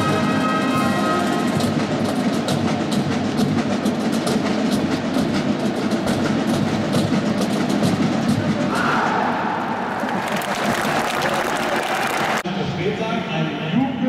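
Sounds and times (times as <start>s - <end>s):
marching brass band: 0.0s - 9.7s
drum strokes: 0.0s - 10.0s.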